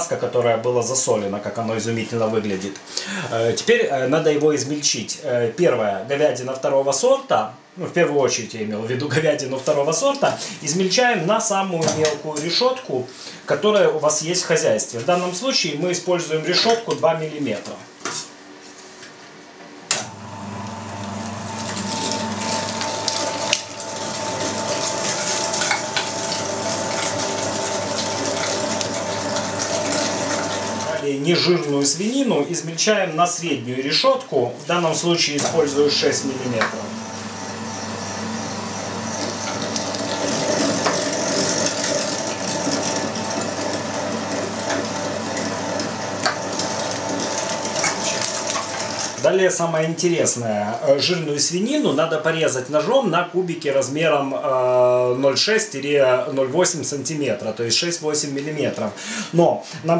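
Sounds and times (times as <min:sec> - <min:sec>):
meat grinder motor running: 0:20.0 - 0:31.0, 0:35.4 - 0:49.4.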